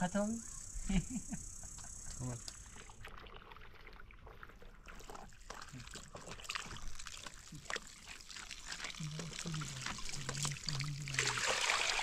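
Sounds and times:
water splashing and trickling: 2.4s - 12.0s.

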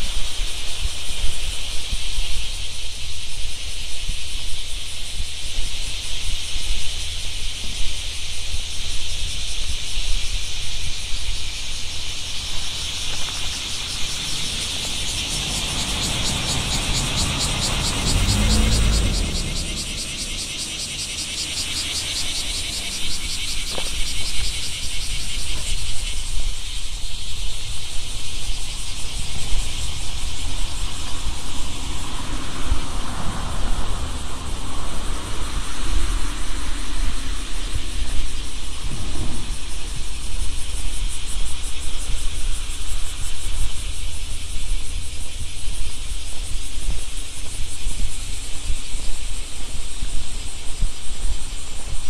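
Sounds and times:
insects trilling: 0.0s - 52.0s
wind rumble on microphone: 0.0s - 52.0s
vehicle passing: 12.2s - 25.3s, 29.6s - 37.8s.

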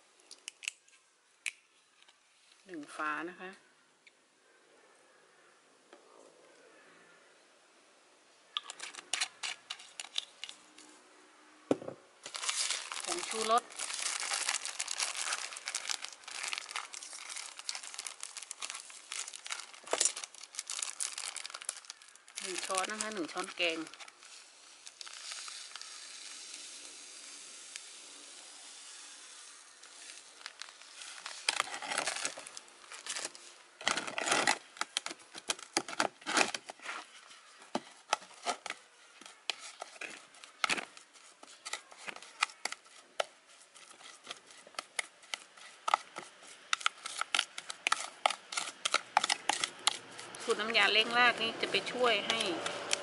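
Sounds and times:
plastic bag rustling: 12.2s - 26.8s, 29.5s - 51.1s.

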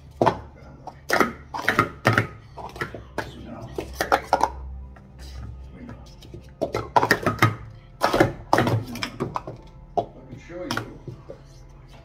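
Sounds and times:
plastic cups clacking: 0.1s - 11.4s.

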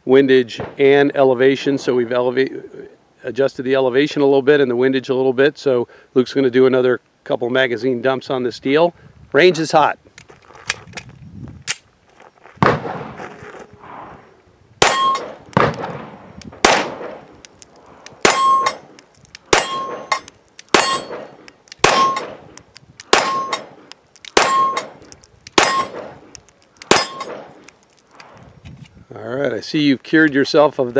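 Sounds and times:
steel target plate ringing: 14.8s - 15.9s, 17.4s - 28.0s
pistol shots: 14.8s - 17.3s, 18.1s - 27.7s.

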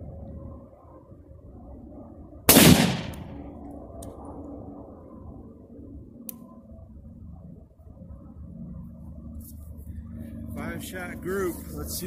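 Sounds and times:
rifle shot with echo: 2.5s - 3.4s.

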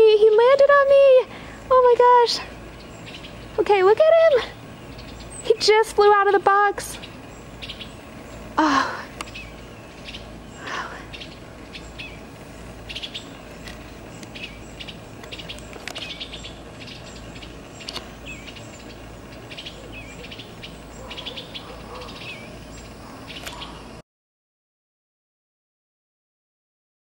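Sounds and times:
birds chirping and chattering: 0.0s - 24.0s.

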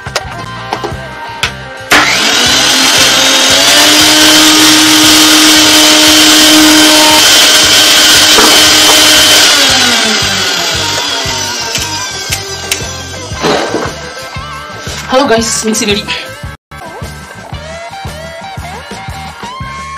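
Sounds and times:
electric motor whining and running: 1.9s - 14.4s.

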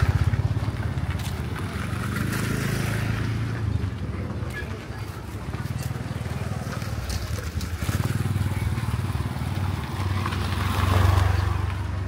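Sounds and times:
motorbike engine running: 5.1s - 12.0s.

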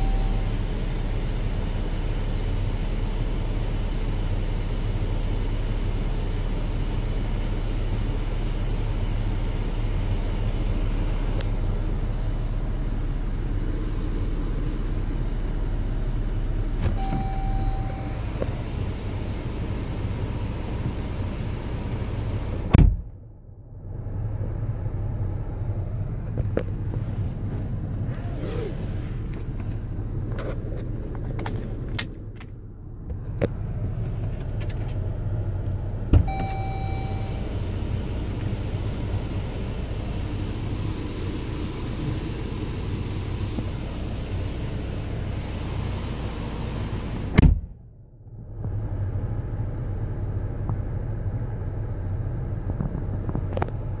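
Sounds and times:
car engine rumble: 0.0s - 54.0s
loud knock: 47.4s - 47.8s.

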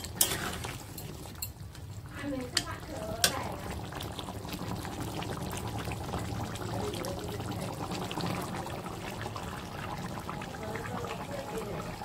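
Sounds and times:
curry bubbling and sputtering: 0.0s - 12.0s.

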